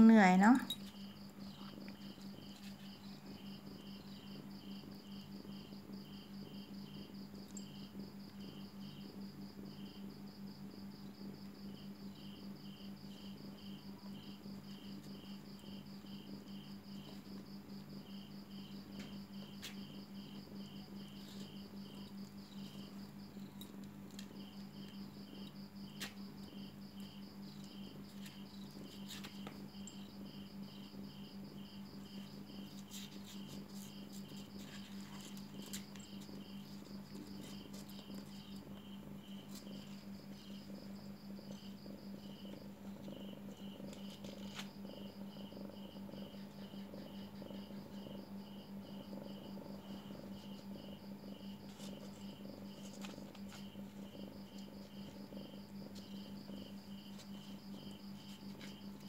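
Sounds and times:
insects chirping: 0.0 - 59.0.

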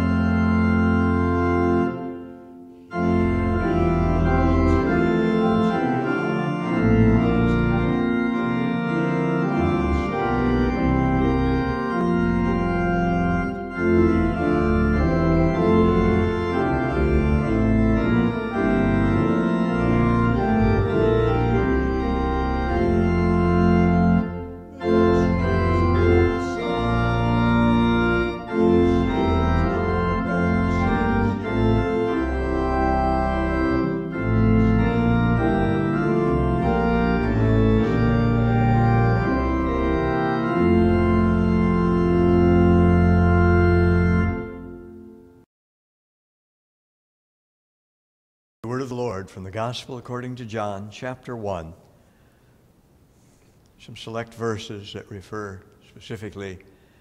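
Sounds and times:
organ playing hymn chords: 0.0 - 45.5.

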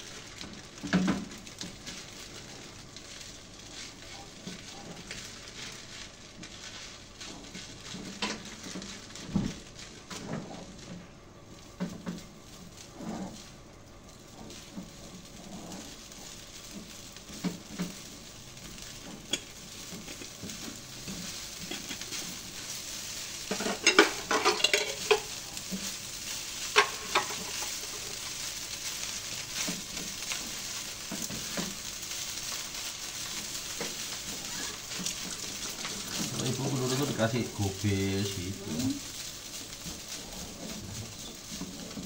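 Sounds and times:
rice sizzling in a frying pan: 0.0 - 42.0
utensil scraping a pan: 0.9 - 10.8, 14.2 - 42.0
utensil clanking against pan: 18.7 - 37.2.

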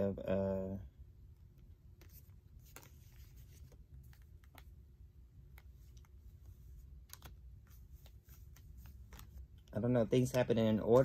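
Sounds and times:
paper cards clicking and rustling: 2.0 - 4.7, 6.9 - 11.0.

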